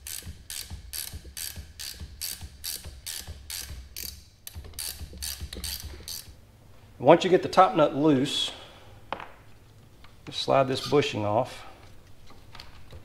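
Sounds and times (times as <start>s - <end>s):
ratchet clicking: 0.0s - 6.4s.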